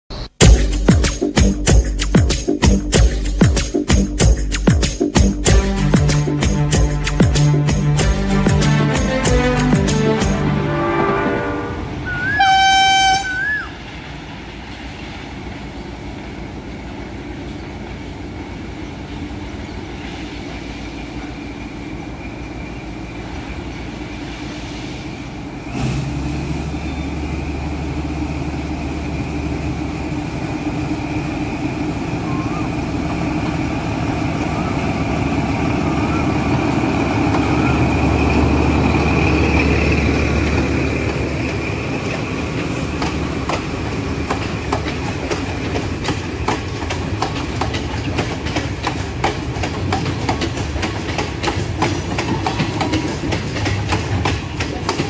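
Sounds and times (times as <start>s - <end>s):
diesel locomotive engine: 0.0s - 55.0s
short high train horn toot: 8.1s - 13.8s.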